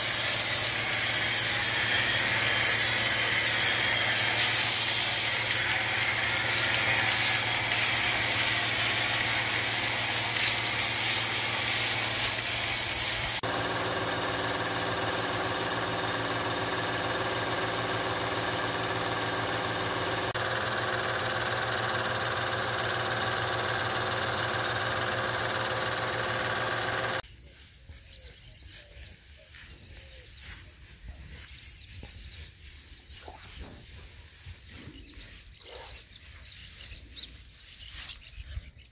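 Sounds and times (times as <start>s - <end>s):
motor and pump whining: 0.0s - 27.2s
sprayer jet hissing: 0.0s - 27.2s.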